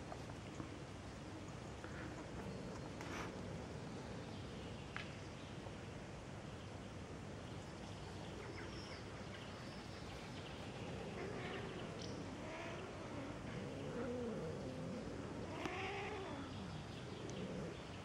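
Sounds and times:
outdoor background noise: 0:00.0 - 0:18.0
cats yowling: 0:10.9 - 0:17.8.

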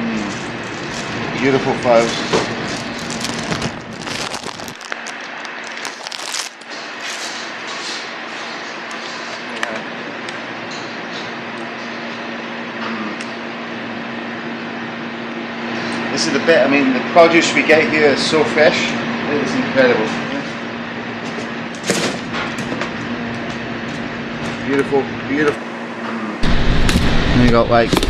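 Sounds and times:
kitchen equipment humming: 0:00.0 - 0:28.0
plastic bag crinkling: 0:00.2 - 0:07.3.

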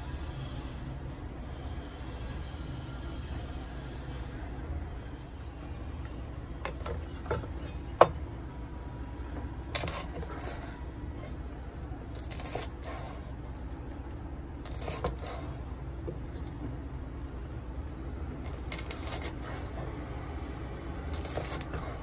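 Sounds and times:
knife slicing lemongrass: 0:09.7 - 0:11.3, 0:12.1 - 0:13.2, 0:14.6 - 0:16.2, 0:18.4 - 0:20.0, 0:21.1 - 0:22.0.

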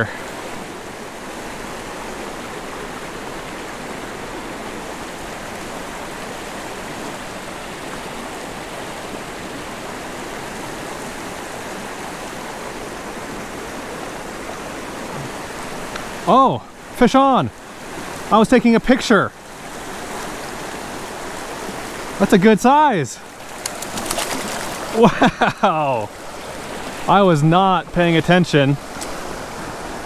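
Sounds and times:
creek flowing over stones: 0:00.0 - 0:30.0.

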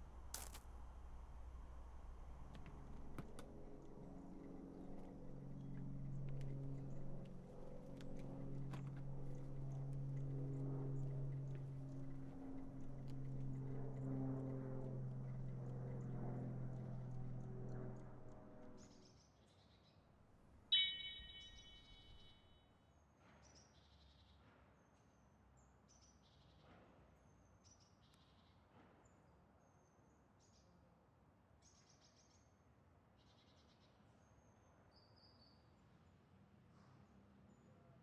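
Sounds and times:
chime-like ring: 0:20.7 - 0:22.4.

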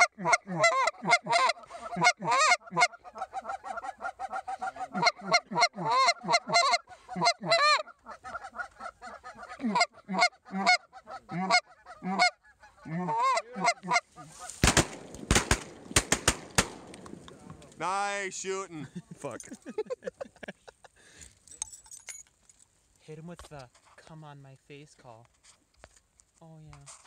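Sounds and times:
geese honking and clucking: 0:00.0 - 0:14.8
shotgun blasts: 0:14.6 - 0:17.4.

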